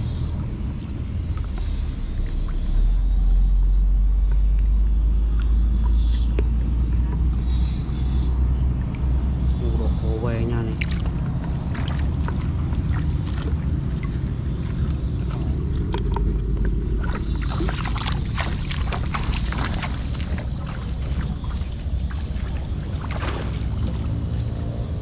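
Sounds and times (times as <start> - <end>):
low rumble: 0.0 - 25.0
water splashing from wading feet: 10.3 - 24.8.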